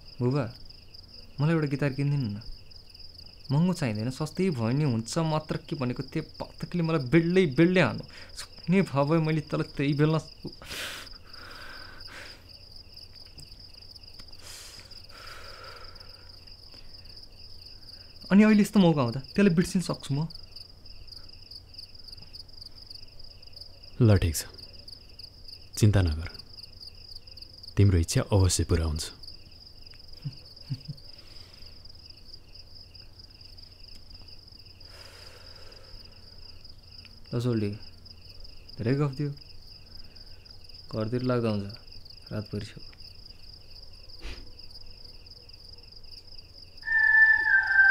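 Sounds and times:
crickets trilling: 0.0 - 47.9
faint rushing sound: 46.8 - 47.9.

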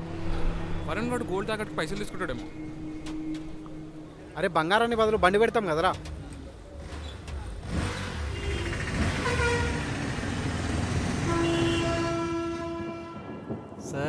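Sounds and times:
traffic engines running: 0.0 - 13.5
long car horn: 8.2 - 10.1, 11.1 - 13.5.

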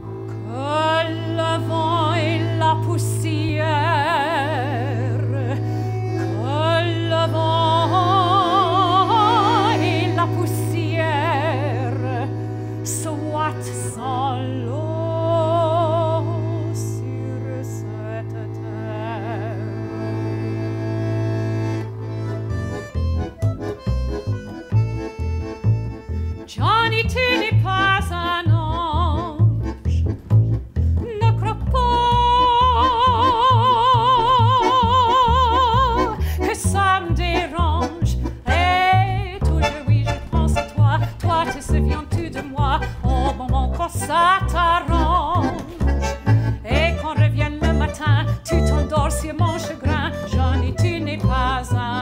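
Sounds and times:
bandoneon chords: 0.0 - 52.0
soprano singing operatically: 6.4 - 12.3, 31.0 - 45.9, 46.6 - 52.0.

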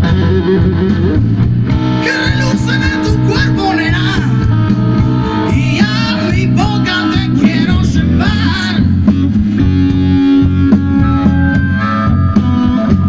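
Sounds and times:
live blues band: 0.0 - 13.0
person singing: 2.0 - 4.4, 5.3 - 9.0.

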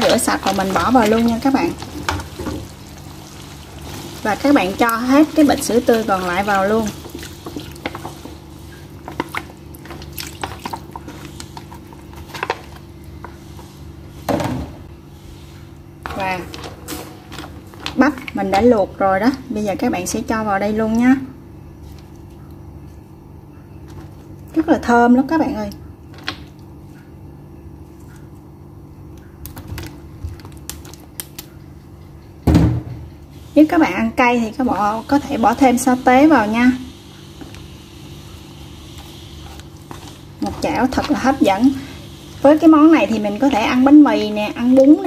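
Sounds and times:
milk dripping and splashing: 0.0 - 12.8
low steady hum: 0.0 - 45.0.

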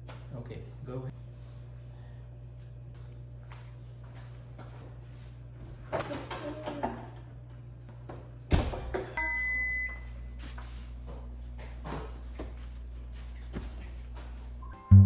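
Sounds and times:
low hum: 14.6 - 15.0.

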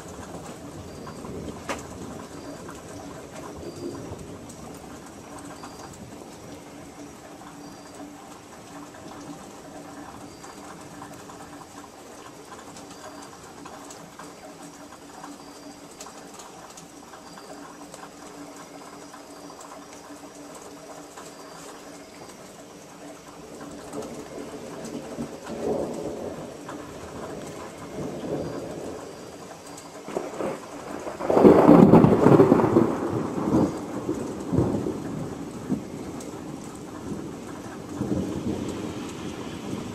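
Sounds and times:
thunder rumbling: 0.0 - 8.0, 23.4 - 39.9
rain hissing: 0.0 - 39.9.

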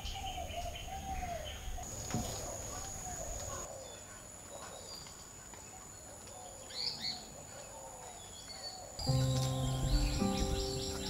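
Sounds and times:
birds chirping: 6.4 - 11.0.

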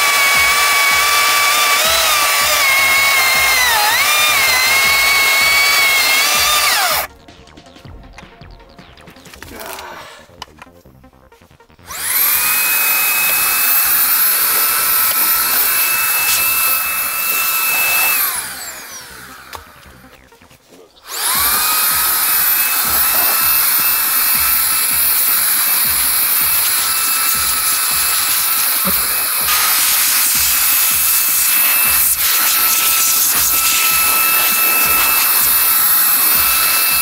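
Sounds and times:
air duster whine and rushing air: 11.9 - 20.1, 21.0 - 37.0.

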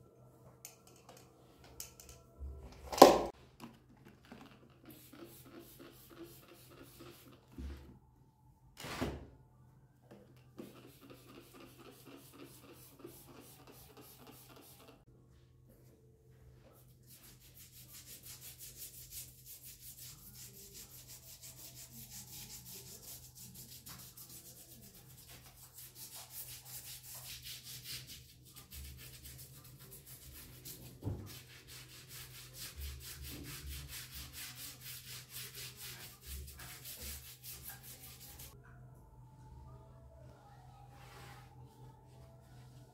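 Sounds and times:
brush scrubbing tile grout: 4.8 - 7.6, 10.6 - 15.0, 16.8 - 38.6.

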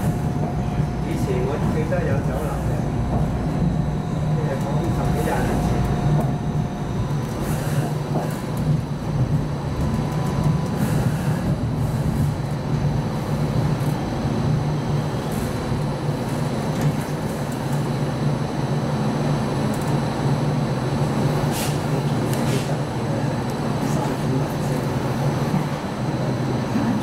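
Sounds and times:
electrical equipment hum: 0.0 - 27.0
tram running on track: 0.0 - 27.0.

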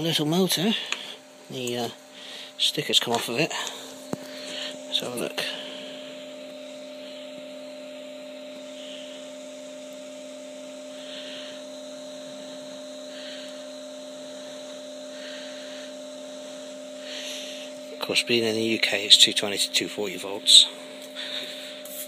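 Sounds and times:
electrical hum with hiss: 0.0 - 22.0.

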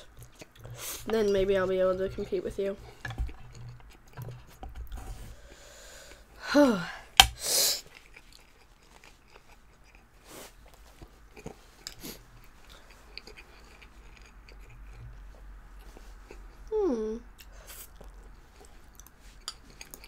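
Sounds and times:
soft eating sounds: 0.0 - 6.5, 7.7 - 20.0
sharp hissing breath: 7.4 - 7.9.

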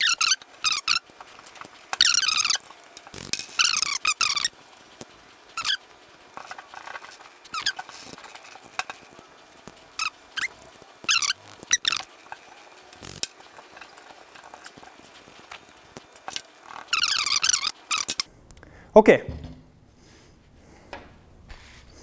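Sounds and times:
rag squeaking on metal: 0.0 - 4.6, 5.5 - 9.2, 9.9 - 15.6, 16.2 - 18.3
soft knock: 19.3 - 19.7
faint wiping: 21.5 - 22.0.

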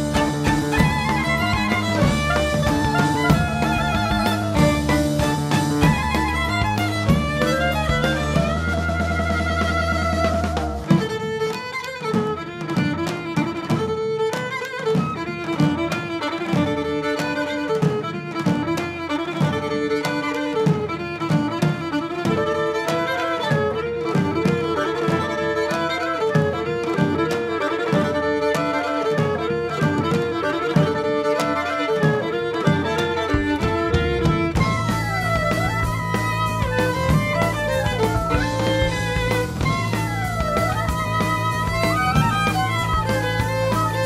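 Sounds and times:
bass: 0.0 - 10.9, 33.8 - 44.0
steady beat: 0.0 - 25.7, 29.4 - 44.0
violin melody: 0.0 - 44.0.

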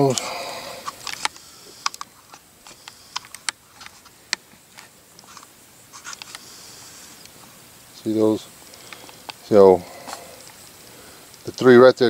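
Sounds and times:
faint sharp clicks: 8.6 - 9.4.

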